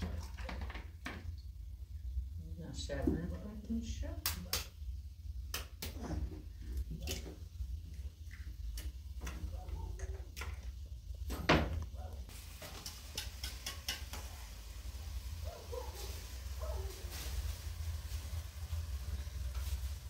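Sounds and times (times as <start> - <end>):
clicks and taps of dishes: 12.8 - 14.4.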